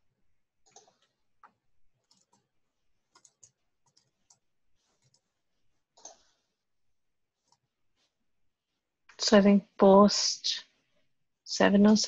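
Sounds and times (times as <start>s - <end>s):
computer mouse clicks: 0.6s - 2.5s, 3.1s - 5.3s, 5.9s - 6.4s.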